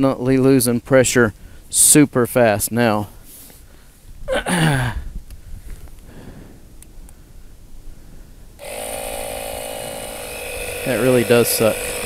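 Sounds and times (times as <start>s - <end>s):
air compressor running: 8.6s - 12.0s.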